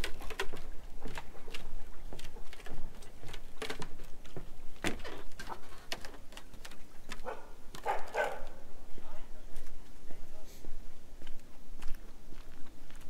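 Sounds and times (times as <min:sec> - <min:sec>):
footsteps on wooden boardwalk: 0:00.0 - 0:08.8, 0:09.4 - 0:13.0
footsteps on gravel: 0:10.7 - 0:13.0.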